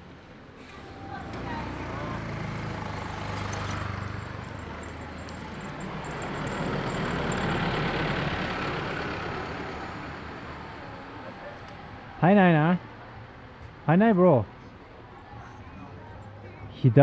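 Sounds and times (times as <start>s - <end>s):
vehicle engine driving past: 0.6s - 12.1s.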